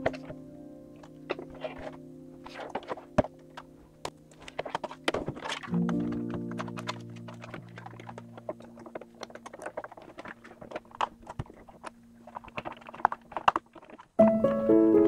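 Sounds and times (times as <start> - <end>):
plastic parts clicking: 0.0 - 14.2
background music chord: 14.2 - 15.0.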